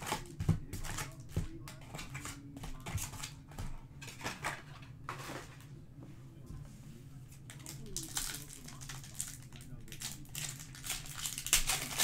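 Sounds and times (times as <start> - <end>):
foil card packs crinkling: 0.0 - 3.4, 7.5 - 12.0.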